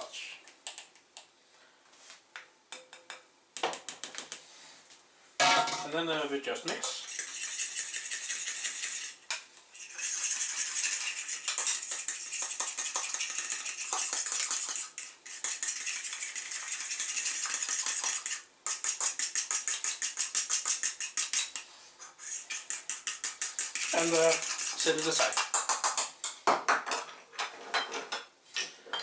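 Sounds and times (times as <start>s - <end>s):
spoon scraping porcelain bowl: 6.7s - 9.2s, 9.8s - 21.6s, 22.2s - 25.2s.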